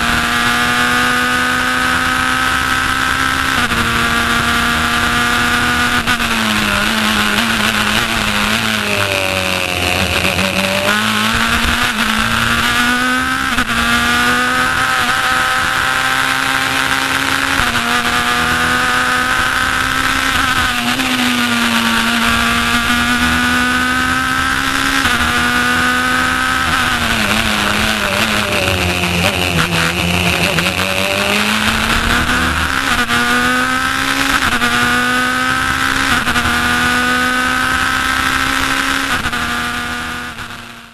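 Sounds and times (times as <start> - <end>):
race car engine revving: 0.0 - 40.9.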